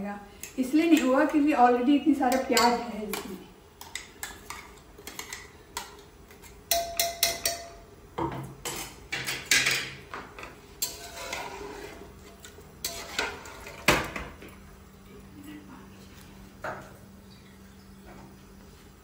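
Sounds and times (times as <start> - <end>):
metal spoon clinking on steel: 6.7 - 7.8.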